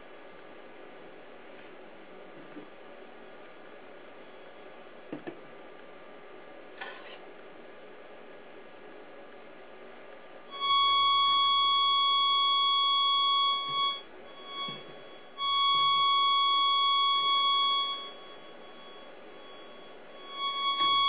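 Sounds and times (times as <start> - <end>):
steady high tone from speaker: 10.4 - 21.0.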